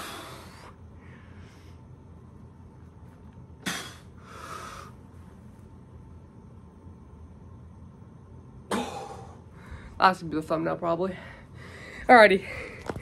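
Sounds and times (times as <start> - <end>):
man exhaling forcefully: 3.6 - 4.9.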